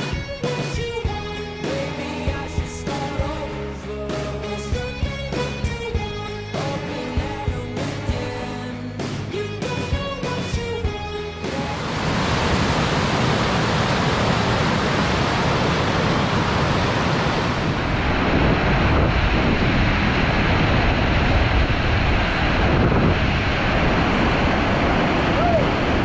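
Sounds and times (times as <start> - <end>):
whitewater rapids rushing: 11.5 - 18.5.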